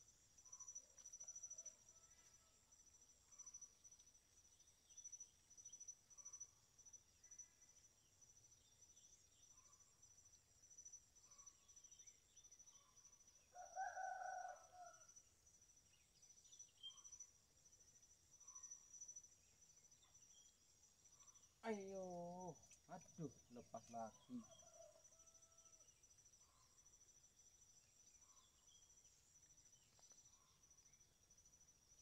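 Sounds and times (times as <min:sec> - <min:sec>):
pulsing insect trill: 0:00.0 - 0:32.0
rooster crowing: 0:13.6 - 0:15.0.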